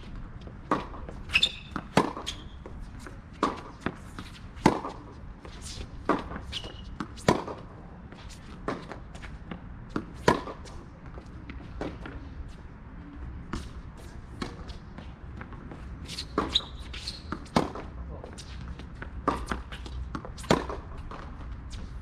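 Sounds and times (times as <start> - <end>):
shoe scuffs on hard court: 0.4 - 12.6, 13.4 - 22.0
tennis ball racket hits: 0.7 - 2.4, 3.4 - 7.7, 10.0 - 10.7, 19.2 - 21.3.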